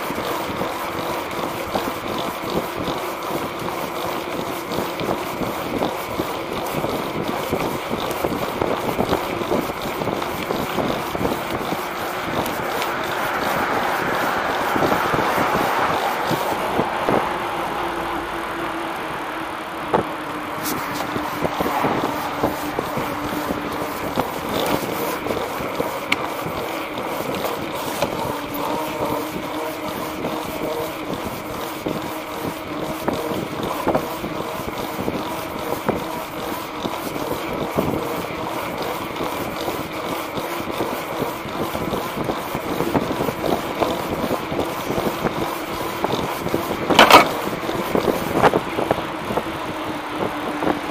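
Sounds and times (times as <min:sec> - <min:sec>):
wind noise on microphone: 0:04.6 - 0:17.8, 0:19.8 - 0:50.9
wheel knocking on bumps: 0:19.8 - 0:49.1.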